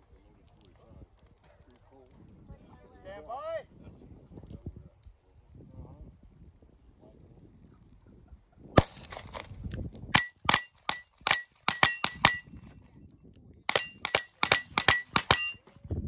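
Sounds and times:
rifle shots: 0:08.8 - 0:09.5, 0:10.2 - 0:12.4, 0:13.7 - 0:15.6
struck steel ringing: 0:10.2 - 0:12.5, 0:13.7 - 0:15.6.

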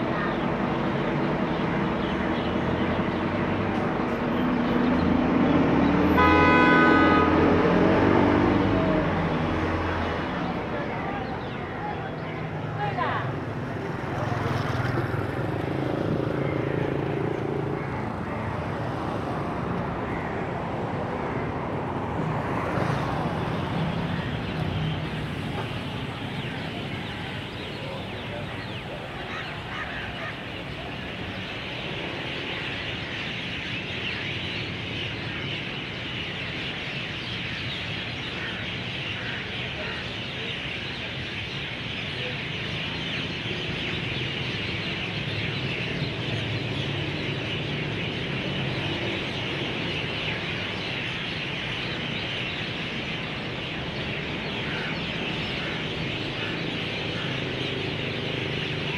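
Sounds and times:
low hum of city traffic: 0:00.0 - 0:58.9
birds chirping and chattering: 0:19.9 - 0:58.9.

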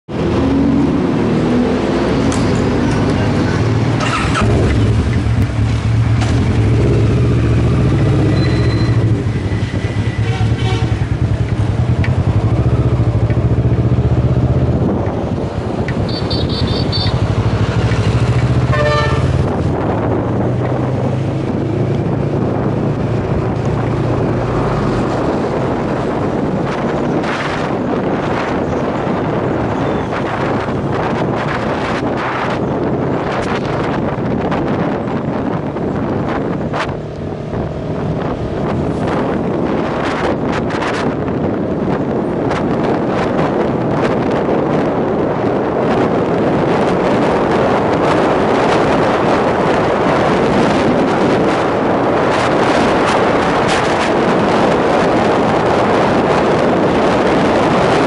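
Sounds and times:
wind on microphone: 0:00.1 - 0:58.0
short beeps: 0:08.3 - 0:09.0.

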